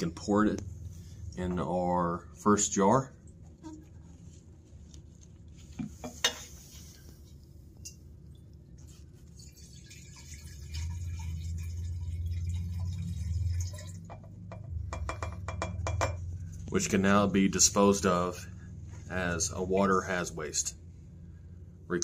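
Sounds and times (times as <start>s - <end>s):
water pouring into glass jar: 7.2s - 16.6s.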